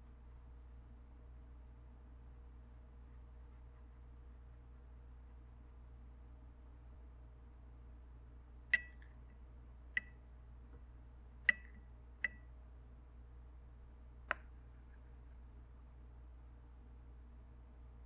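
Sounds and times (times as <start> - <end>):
paintbrush clinking on glass: 8.8 - 9.1, 11.5 - 11.8.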